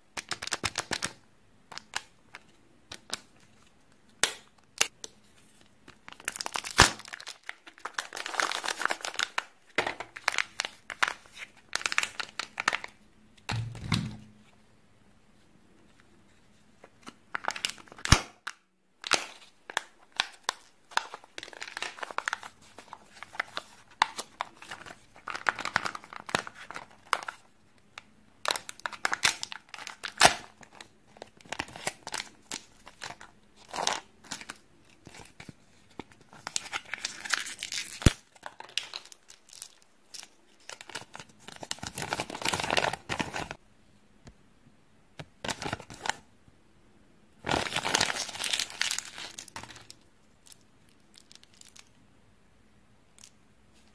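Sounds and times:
foil wrappers crinkling: 5.9s - 13.0s, 19.0s - 27.5s, 28.4s - 43.6s, 47.5s - 51.9s.

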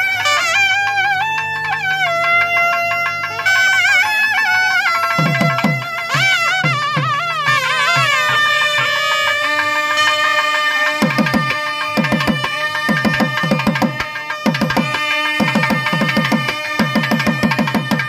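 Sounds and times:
double-reed horns holding long notes: 0.0s - 18.0s
drums playing driving rhythm: 5.1s - 9.1s, 10.9s - 18.0s.

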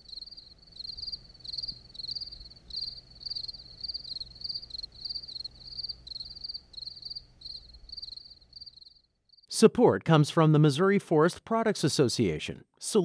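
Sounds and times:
cricket chirping: 0.0s - 9.5s.

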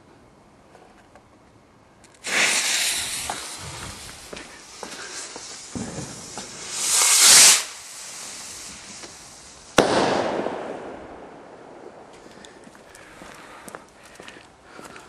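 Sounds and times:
faint crackles: 0.7s - 9.8s, 11.3s - 15.0s
firework rocket hissing: 2.2s - 12.3s
firework bang: 2.2s - 12.4s.

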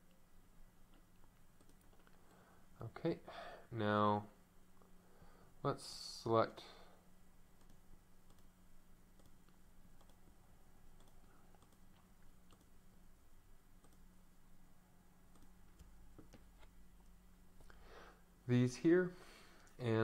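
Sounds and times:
low electrical hum: 0.0s - 20.0s
computer mouse clicks: 0.9s - 2.4s, 7.6s - 8.5s, 9.2s - 10.2s, 11.0s - 12.8s, 13.8s - 14.1s, 15.3s - 16.7s.

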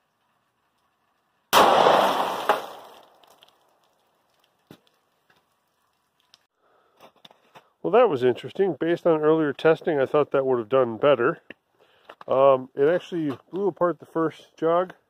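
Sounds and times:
pistol shot: 1.5s - 3.0s.

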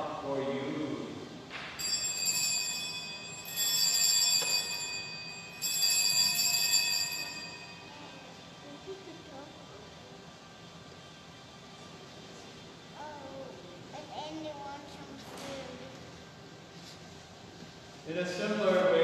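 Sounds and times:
altar bells ringing: 1.8s - 8.4s.

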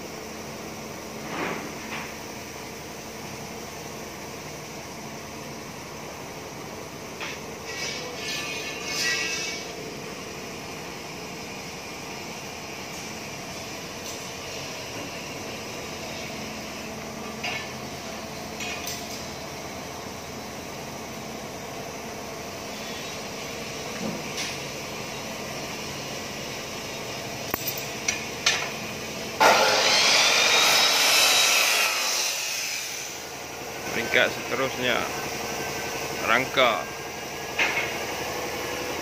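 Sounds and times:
workshop hum: 0.0s - 39.0s
power tool grinding metal: 29.4s - 33.2s.

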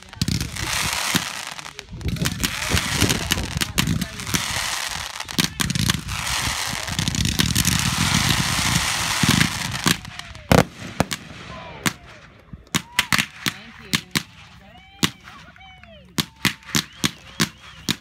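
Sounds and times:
firework crackling and popping: 0.0s - 18.0s.

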